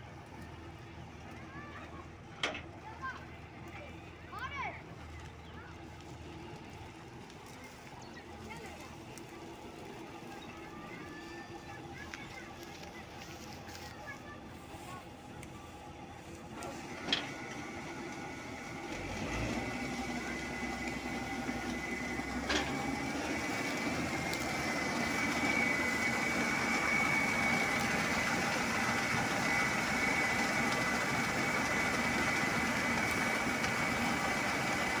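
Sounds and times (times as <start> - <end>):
combine harvester running: 0.0 - 35.0
auger high whine: 15.0 - 35.0.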